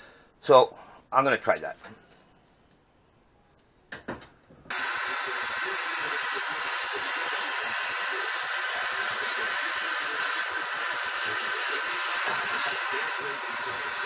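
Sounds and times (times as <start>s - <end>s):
propane torch flame hissing: 4.7s - 14.0s.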